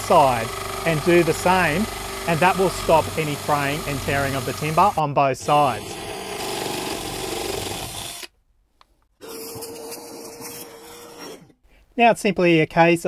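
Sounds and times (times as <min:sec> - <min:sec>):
drill grinding into wood: 0:00.0 - 0:08.3
drill motor whine: 0:00.0 - 0:08.3.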